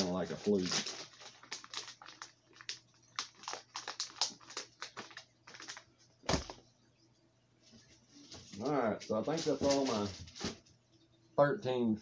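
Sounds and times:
plastic bag crinkling: 0.0 - 6.6, 8.4 - 10.6.

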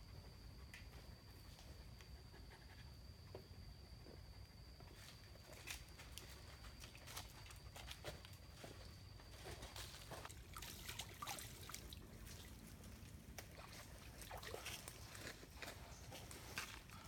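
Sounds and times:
water trickling and sloshing: 5.4 - 17.0.

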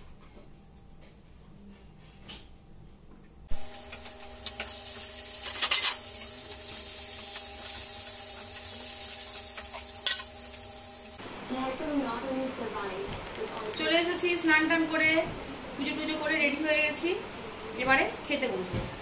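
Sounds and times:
fish sizzling in hot oil: 3.5 - 11.2
exhaust fan humming: 3.5 - 18.7.

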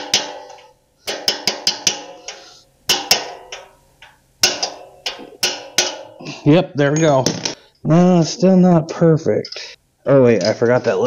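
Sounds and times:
metal tapper striking valve: 0.0 - 6.2.

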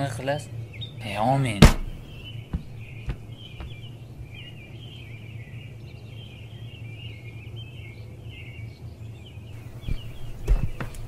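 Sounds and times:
birds chirping and twittering: 0.0 - 11.0
steady low hum: 0.0 - 11.0.

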